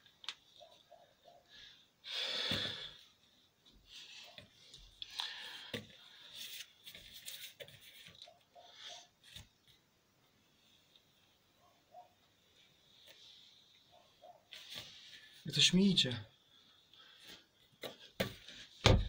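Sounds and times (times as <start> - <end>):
man breathing hard: 1.5 - 3.1, 5.0 - 6.3.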